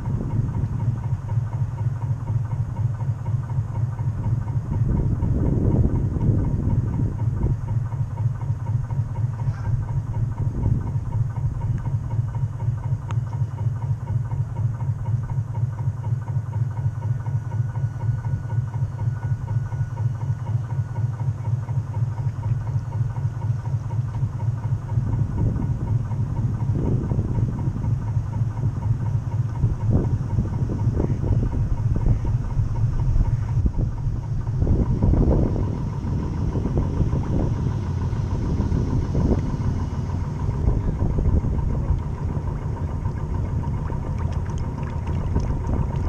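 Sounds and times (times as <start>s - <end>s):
model boat motor throbbing drone: 0.0s - 46.0s.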